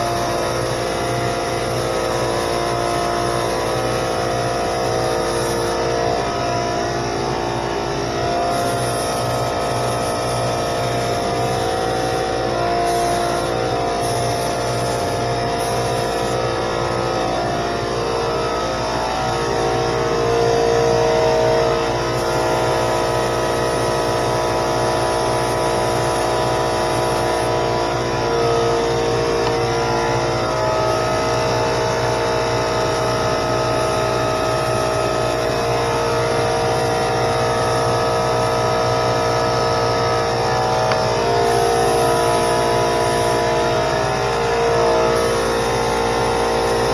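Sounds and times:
spray gun air hiss: 0:00.0 - 0:18.0, 0:41.0 - 0:46.9
air compressor humming: 0:00.0 - 0:46.9.

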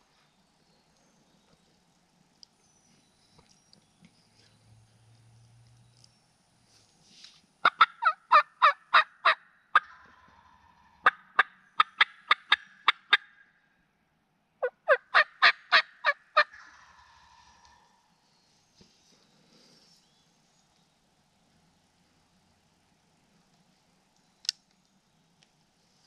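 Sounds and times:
turkey gobbling: 0:07.6 - 0:13.4, 0:14.6 - 0:18.0.

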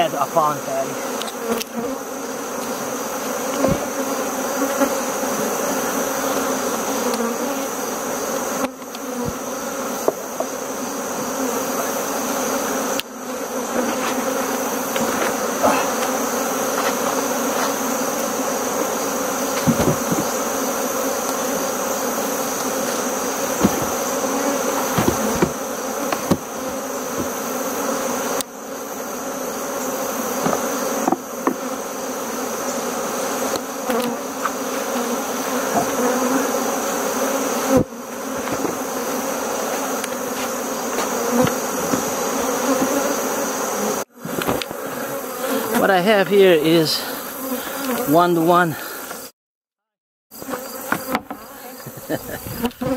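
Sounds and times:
bees buzzing: 0:00.0 - 0:49.4, 0:50.3 - 0:52.9
wooden hive boxes knocking: 0:03.5 - 0:04.1, 0:08.6 - 0:10.6, 0:13.7 - 0:18.3, 0:19.4 - 0:20.7, 0:22.5 - 0:27.6, 0:30.4 - 0:31.8, 0:35.6 - 0:36.3, 0:37.7 - 0:39.1, 0:39.7 - 0:43.1, 0:44.2 - 0:44.8, 0:50.4 - 0:52.9.

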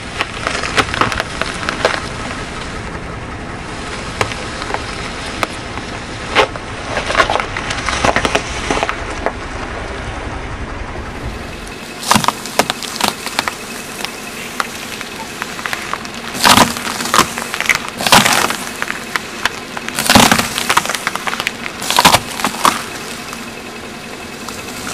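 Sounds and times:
tyre crushing brittle objects: 0:00.0 - 0:02.2, 0:06.3 - 0:09.4, 0:12.0 - 0:23.6
car low rumble: 0:00.0 - 0:24.9.

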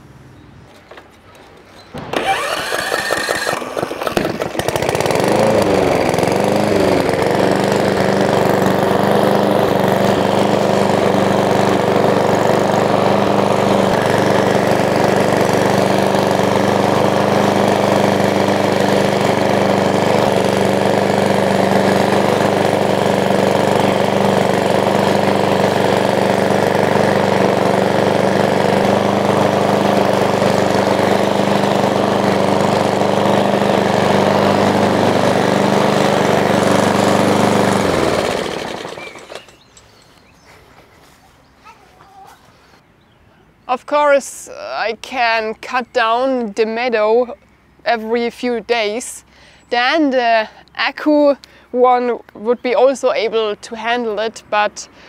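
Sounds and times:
lawn mower engine running: 0:02.0 - 0:40.2.

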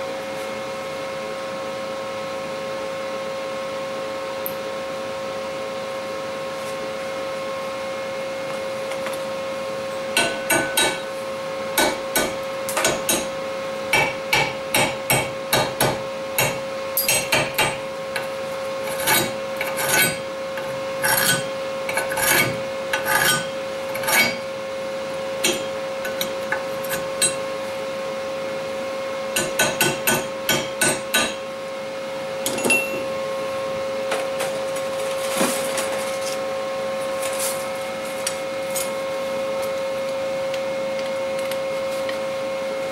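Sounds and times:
steady hum: 0:04.4 - 0:42.9
hammer tapping metal: 0:10.1 - 0:11.1, 0:11.8 - 0:13.3, 0:13.9 - 0:17.8, 0:25.4 - 0:27.4, 0:29.3 - 0:31.4.

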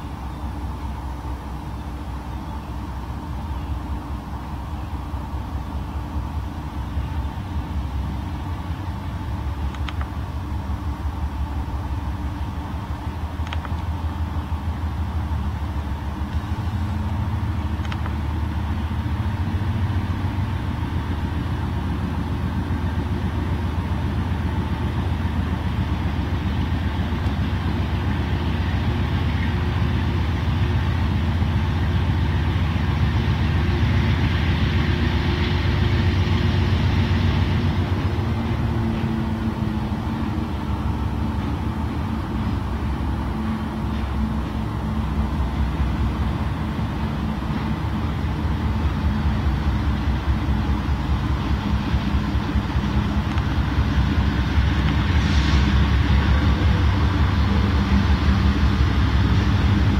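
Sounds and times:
diesel locomotive engines rumbling: 0:00.0 - 0:59.9
faint clicks: 0:09.7 - 0:10.2, 0:13.4 - 0:13.9, 0:17.8 - 0:18.2.

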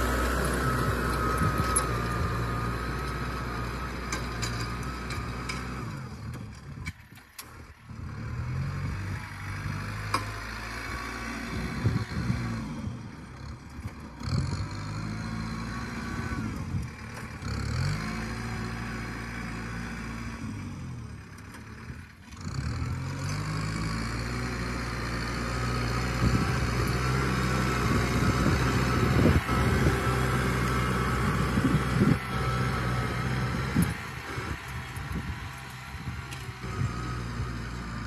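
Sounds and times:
tractor diesel engine under load: 0:00.0 - 0:38.0.

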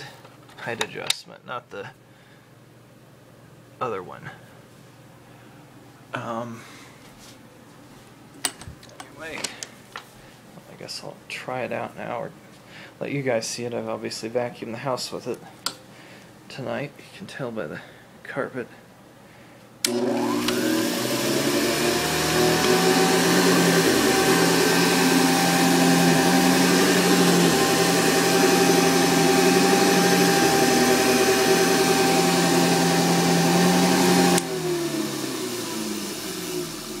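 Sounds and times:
vacuum cleaner motor whine: 0:19.8 - 0:37.0.

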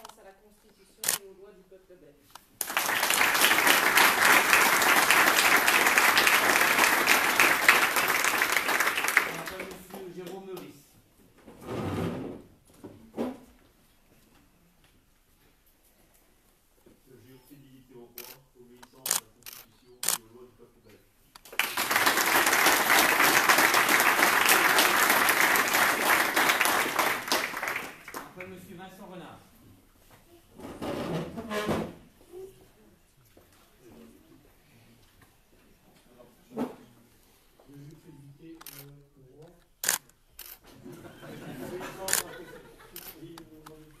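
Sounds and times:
people clapping: 0:02.6 - 0:10.8, 0:21.4 - 0:28.7.

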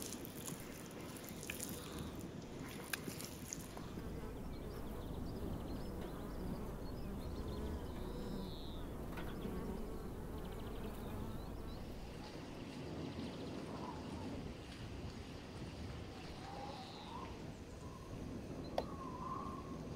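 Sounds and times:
bees buzzing: 0:03.5 - 0:12.2.

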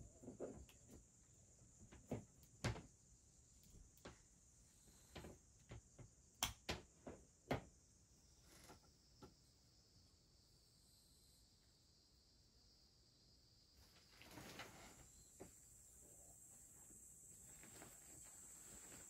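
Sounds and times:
faint high hiss: 0:07.8 - 0:19.0.

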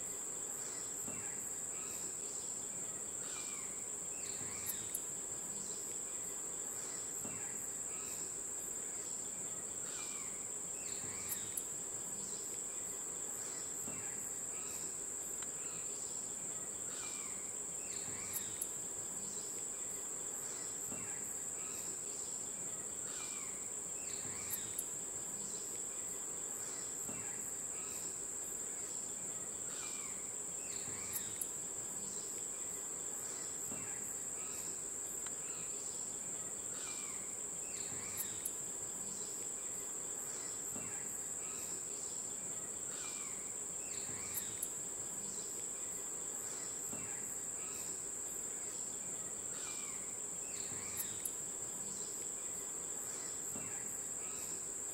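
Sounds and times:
insect chorus drone: 0:00.0 - 0:54.9.

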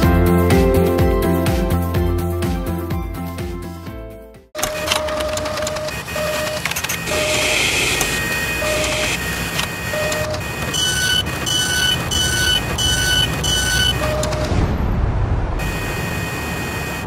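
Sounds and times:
short beeping tones: 0:04.6 - 0:09.2, 0:09.8 - 0:14.6
machine whirring and clattering: 0:04.6 - 0:14.6.

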